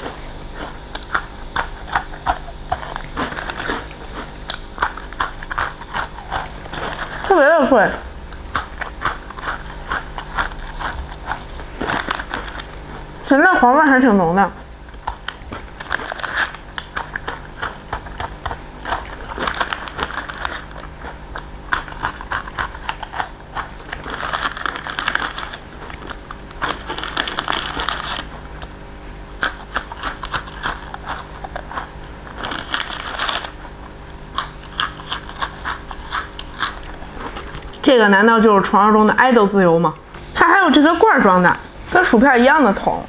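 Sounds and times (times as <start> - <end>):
crunching and chewing: 0.0 - 38.0
foil wrapper crinkling: 9.1 - 13.2, 15.0 - 28.4, 29.6 - 36.5.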